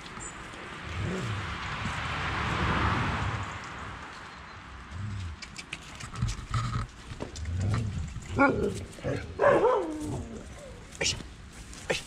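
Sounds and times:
scattered clicks: 5.2s - 7.5s.

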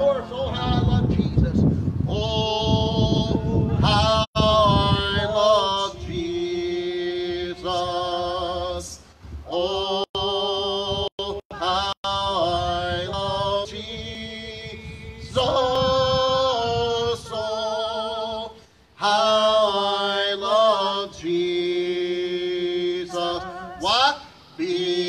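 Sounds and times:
man singing hymn with vibrato: 0.0s - 25.0s.

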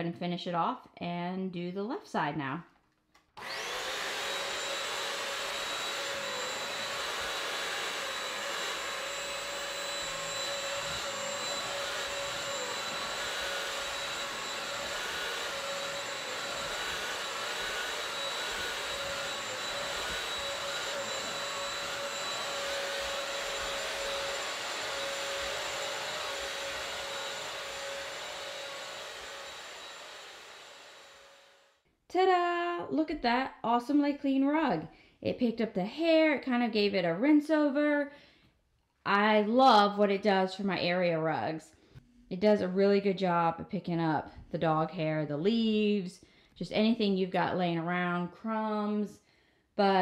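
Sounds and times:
vacuum mop motor whine: 3.4s - 31.7s.

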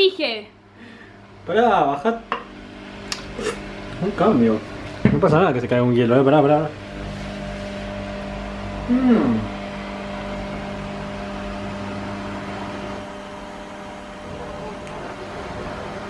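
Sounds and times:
small electric motor humming: 5.7s - 16.0s
person humming mm: 8.9s - 9.5s.

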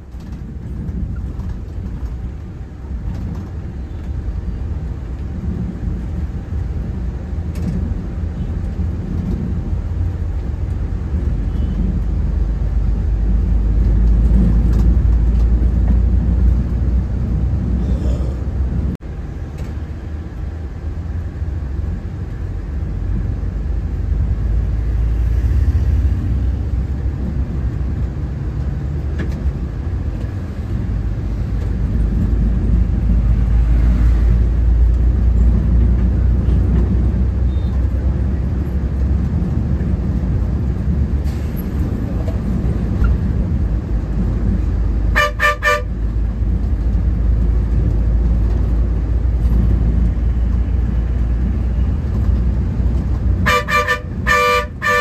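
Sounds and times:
bus engine and road noise: 0.0s - 55.0s
vehicle horn short toots: 45.2s - 45.9s, 53.4s - 55.0s.

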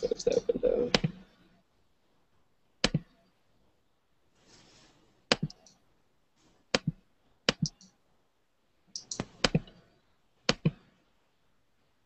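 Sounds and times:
computer mouse clicks: 2.8s - 3.2s, 5.3s - 5.8s, 6.7s - 8.0s, 8.9s - 9.8s, 10.5s - 10.9s.

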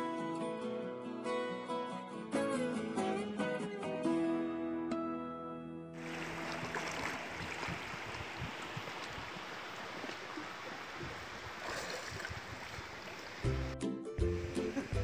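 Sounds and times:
guitar music: 0.0s - 6.0s, 13.5s - 15.0s
river water rushing: 6.0s - 13.8s, 14.4s - 15.0s.

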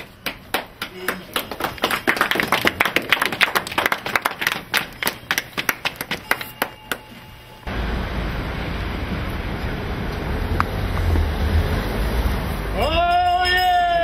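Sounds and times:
people applauding: 0.0s - 7.1s.

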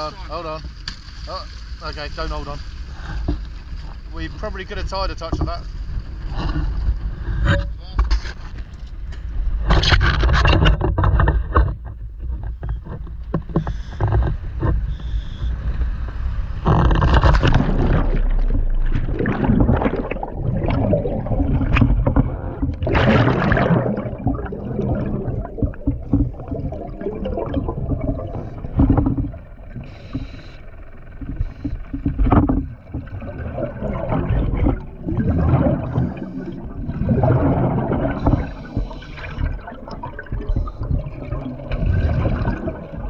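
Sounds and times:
low underwater rumble: 0.0s - 43.0s
diver regulator exhaust bubbles: 16.6s - 43.0s.

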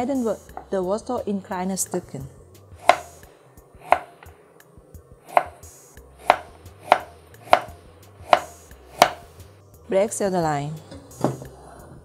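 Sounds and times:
knife chopping carrot on wooden board: 2.8s - 4.3s, 5.3s - 9.3s.

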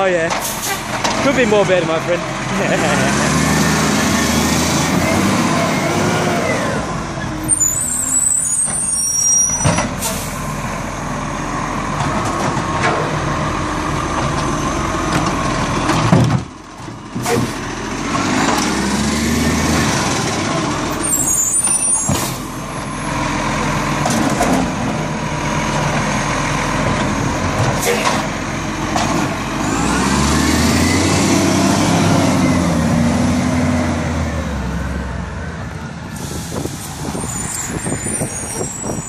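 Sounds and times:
diesel truck engine revving: 0.0s - 39.0s
air brake hisses: 36.1s - 37.3s.

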